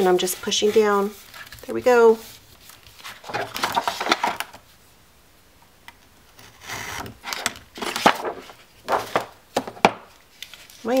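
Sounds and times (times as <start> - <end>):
paper rubbing on glass mat: 0.0 - 3.0.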